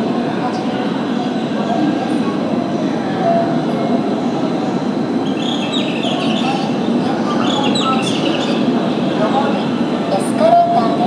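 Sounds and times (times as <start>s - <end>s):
electric trains humming: 0.0s - 11.0s
high bird-like chirps: 5.2s - 8.7s.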